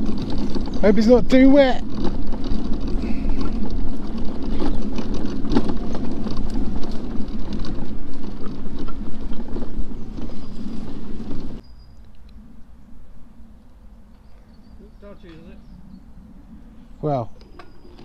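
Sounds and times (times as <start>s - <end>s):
knocks and rattles from bumps: 0.0s - 11.6s
mobility scooter rumbling: 0.0s - 18.0s.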